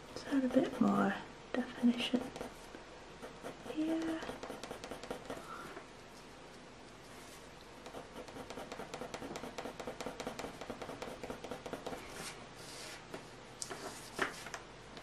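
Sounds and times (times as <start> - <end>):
pencil scratching on paper: 0.2 - 2.6, 3.2 - 5.4, 7.8 - 12.3.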